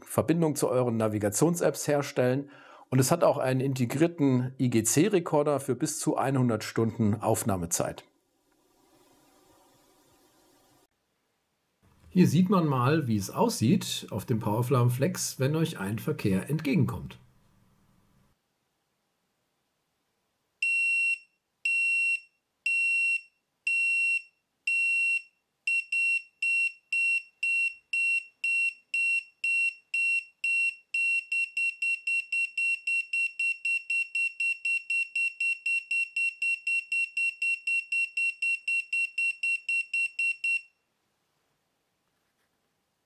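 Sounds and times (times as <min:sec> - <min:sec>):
high-pitched warning buzzer beeps: 0:20.6 - 0:40.7.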